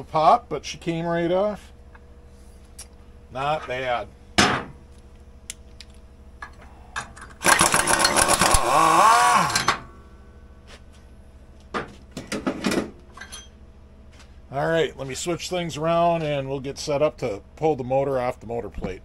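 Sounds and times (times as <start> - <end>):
impact wrench rattling: 7.4 - 8.7.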